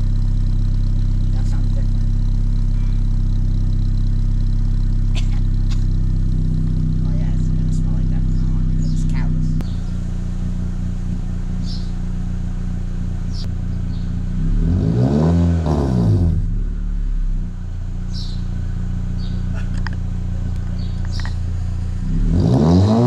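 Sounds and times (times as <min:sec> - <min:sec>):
car engine idling and revving: 0:00.0 - 0:23.0.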